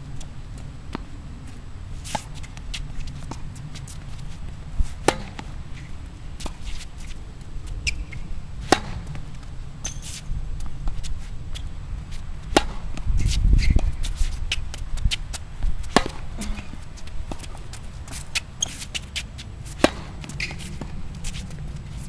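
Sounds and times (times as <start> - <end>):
rackets striking tennis ball: 2.0 - 11.0, 12.4 - 22.0
tennis ball bouncing: 4.9 - 7.2, 7.8 - 11.7, 12.4 - 22.0.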